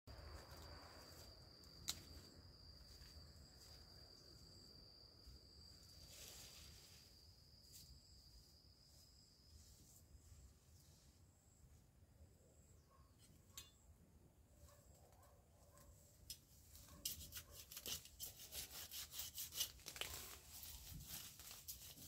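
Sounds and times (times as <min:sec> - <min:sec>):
high-pitched insect trill: 0:00.1 - 0:10.2.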